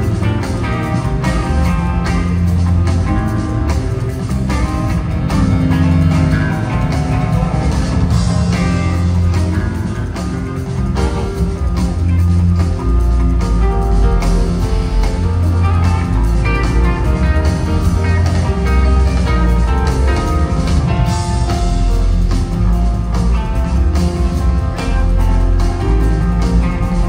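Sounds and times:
bass notes: 0.0s - 27.0s
drum kit: 0.0s - 27.0s
electric guitar: 0.0s - 27.0s
keyboards: 0.0s - 27.0s.

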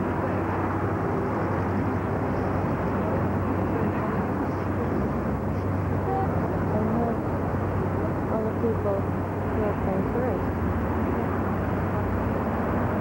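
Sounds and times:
steady low city rumble: 0.0s - 13.0s.

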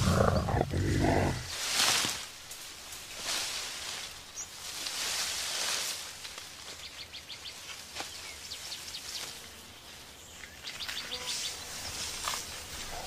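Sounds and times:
birds chirping: 0.0s - 1.5s
faint forest background: 0.0s - 13.0s.

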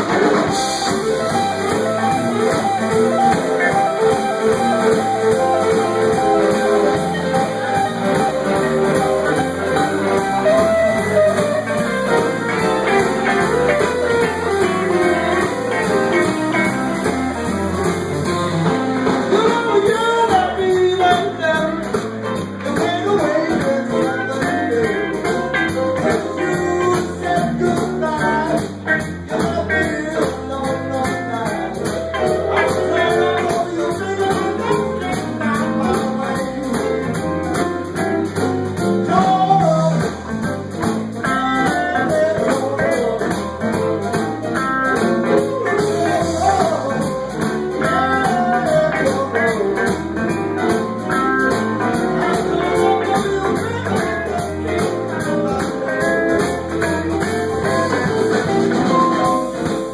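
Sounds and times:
live blues band playing: 0.0s - 59.9s
wavering lead melody: 0.5s - 19.3s.

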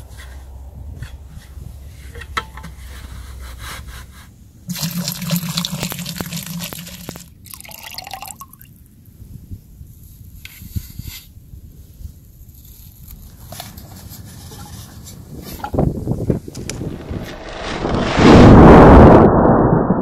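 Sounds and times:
soda pouring and fizzing: 4.7s - 8.7s.

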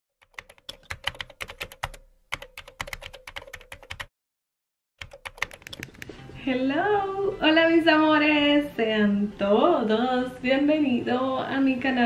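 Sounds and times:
keyboard typing clicks: 0.2s - 4.1s, 5.0s - 6.2s.

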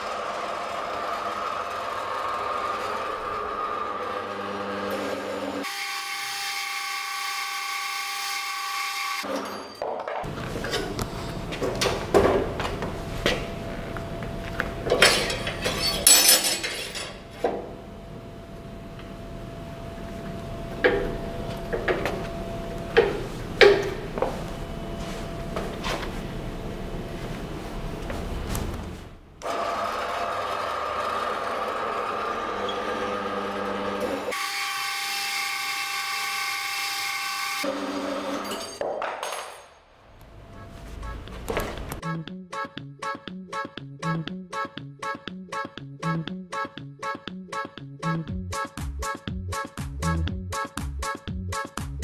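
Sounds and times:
bandsaw cutting steel: 0.0s - 9.8s, 14.9s - 17.4s, 29.4s - 38.8s
metal rod clanking: 14.9s - 17.2s.

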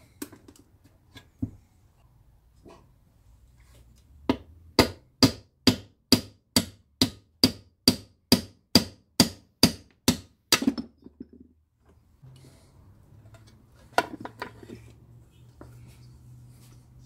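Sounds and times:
hammer tapping on metal bearing: 4.3s - 10.8s.

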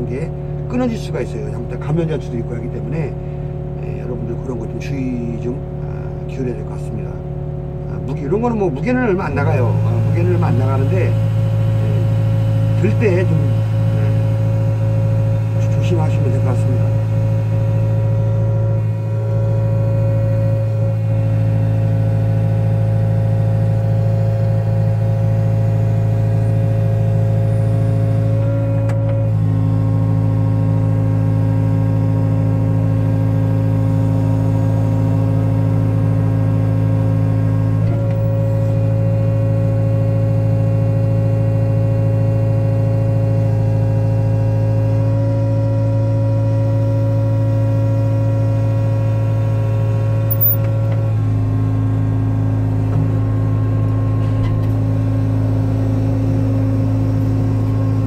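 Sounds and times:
excavator engine and hydraulics: 7.8s - 32.1s, 50.0s - 58.0s.

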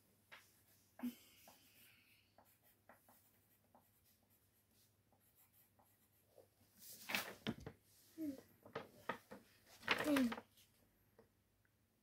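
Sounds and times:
pencil scratching on paper: 0.4s - 7.0s
paper rustle: 6.8s - 7.8s, 8.6s - 10.8s.

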